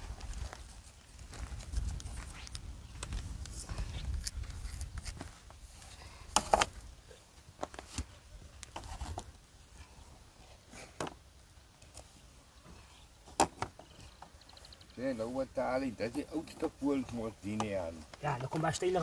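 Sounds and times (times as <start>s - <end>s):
wind rumble on microphone: 1.2s - 5.7s.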